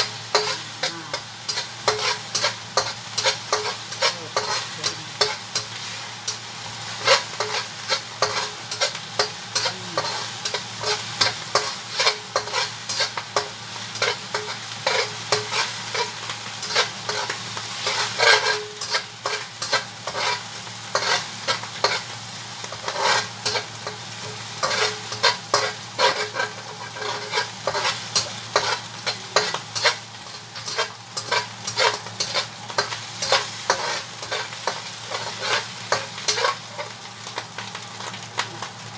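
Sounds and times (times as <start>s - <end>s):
food sizzling in a pan: 0.0s - 38.9s
utensil scraping and knocking pan: 22.7s - 36.9s.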